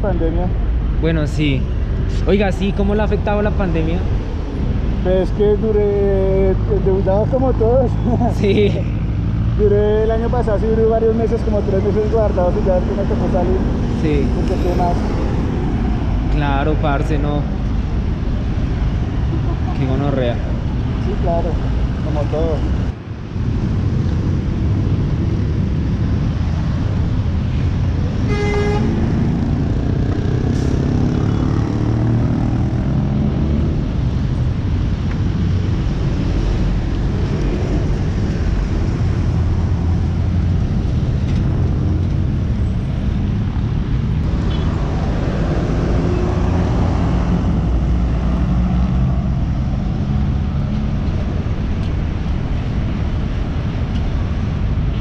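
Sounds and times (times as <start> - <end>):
bus and car engines pulling away: 28.4 - 55.0.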